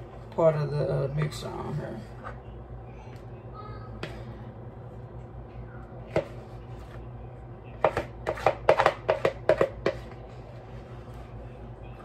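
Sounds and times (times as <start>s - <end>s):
spatula knocking on plastic bowl: 7.7s - 10.2s.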